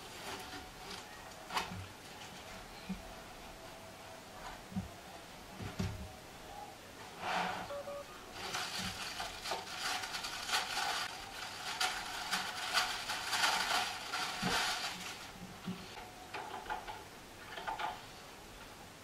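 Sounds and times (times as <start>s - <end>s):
cardboard box crackling rustle: 8.4s - 15.9s.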